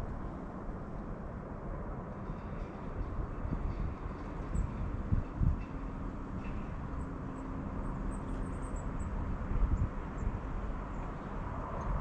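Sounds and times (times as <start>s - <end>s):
wind rumbling on microphone: 0.0s - 12.0s.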